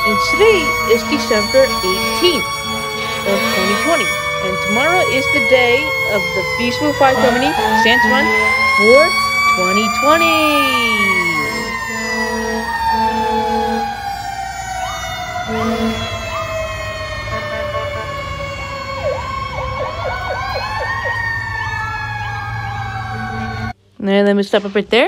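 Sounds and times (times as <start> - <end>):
low engine rumble: 0.0 - 23.1
siren yelp: 0.0 - 23.8
sirens wailing: 0.0 - 23.8
short horn blasts: 0.1 - 14.1, 15.4 - 16.3, 17.3 - 18.3.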